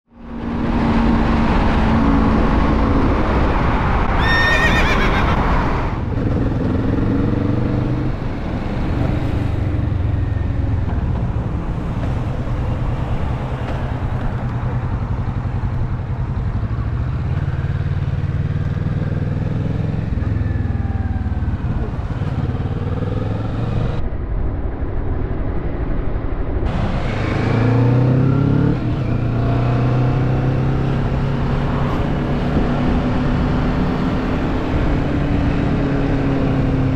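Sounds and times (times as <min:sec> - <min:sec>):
motorcycle engine revving: 0:05.8 - 0:11.4, 0:14.7 - 0:24.0, 0:26.7 - 0:36.9.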